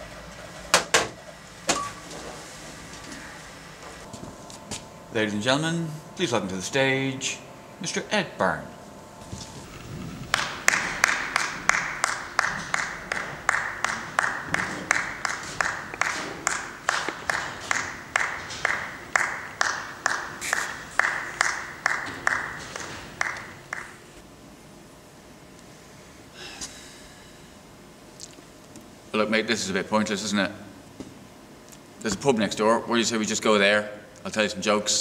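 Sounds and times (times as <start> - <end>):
person clapping: 10.3 - 24.0.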